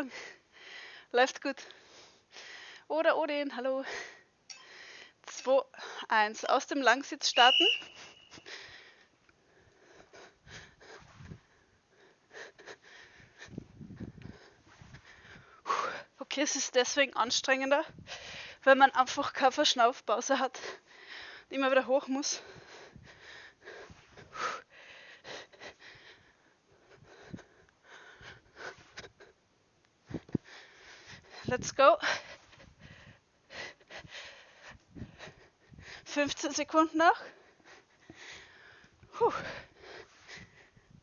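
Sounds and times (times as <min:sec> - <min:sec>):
woman breathing hard: 0:00.0 - 0:01.1, 0:01.7 - 0:02.9, 0:03.9 - 0:05.2, 0:08.0 - 0:16.2, 0:17.9 - 0:18.6, 0:20.6 - 0:21.5, 0:22.4 - 0:29.3, 0:30.1 - 0:36.1, 0:37.2 - 0:41.0.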